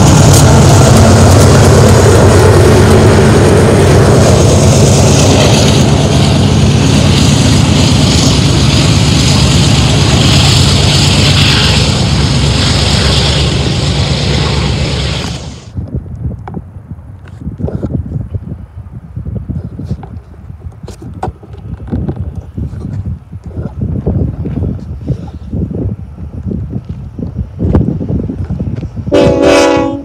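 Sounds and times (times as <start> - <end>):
train wheels on rails: 0.0 - 16.6, 19.7 - 30.0
diesel locomotive engine rumble: 0.0 - 30.0.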